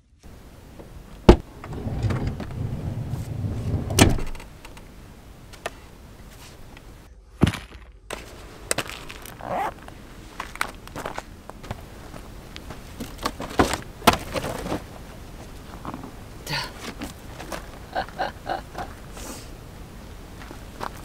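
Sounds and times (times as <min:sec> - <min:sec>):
sliding door rumbling open: 0:01.3 - 0:04.6
door stopping with thunk: 0:03.6 - 0:04.4
footsteps on gravel: 0:07.5 - 0:13.9, 0:20.4 - 0:21.0.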